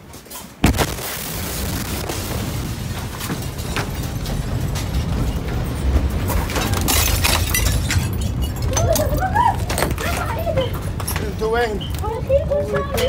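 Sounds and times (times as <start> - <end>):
low explosion rumble: 0.6 - 6.3
falling debris clatter: 0.6 - 11.1
glass rattling and tinkling: 6.8 - 11.9.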